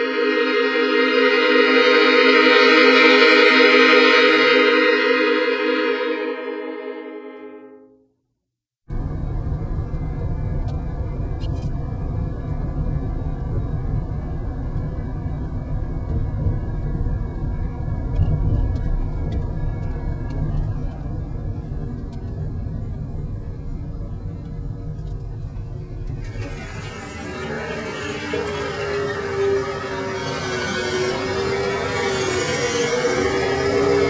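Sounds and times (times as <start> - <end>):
car engine and road noise: 8.9 - 34.0.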